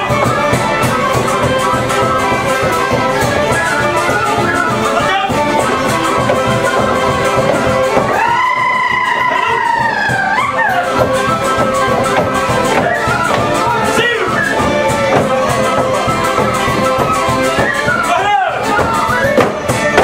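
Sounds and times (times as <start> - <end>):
folk dance music on fiddles and accordion: 0.0 - 20.0.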